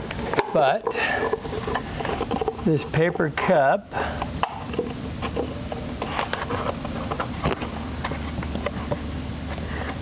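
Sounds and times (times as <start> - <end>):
steady low hum: 0.0 - 10.0
paper cup crinkling and scraping: 0.8 - 3.5, 4.6 - 9.0.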